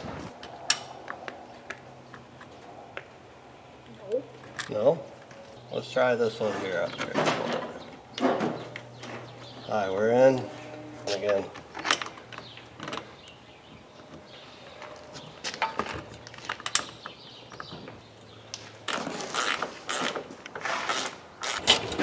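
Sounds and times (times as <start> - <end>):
metal hardware clicking and scraping: 10.3 - 13.1.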